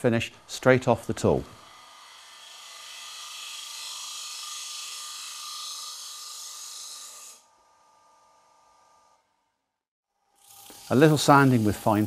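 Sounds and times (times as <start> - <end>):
lathe cutter shaving wood: 0.4 - 7.4, 10.4 - 12.0.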